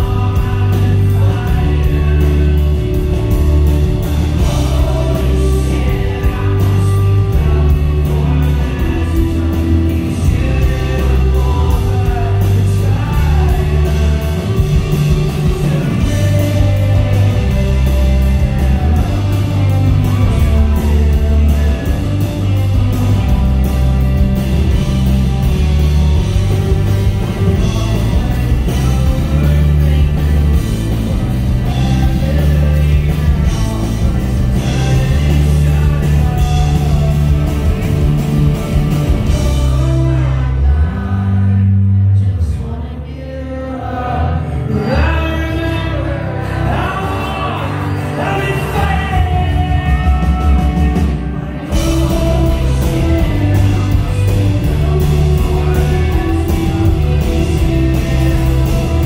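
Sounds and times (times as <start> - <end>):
pedal steel guitar: 0.0 - 41.6
acoustic guitar: 0.0 - 59.0
drums: 0.0 - 59.0
electric guitar: 0.0 - 59.0
heavy bass: 0.0 - 59.0
person singing: 0.0 - 59.0.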